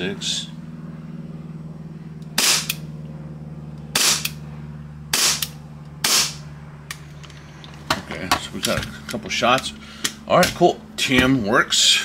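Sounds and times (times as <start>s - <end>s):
steady low hum: 0.0s - 12.0s
airsoft pistol shots: 2.4s - 2.8s, 3.9s - 4.4s, 5.1s - 6.4s.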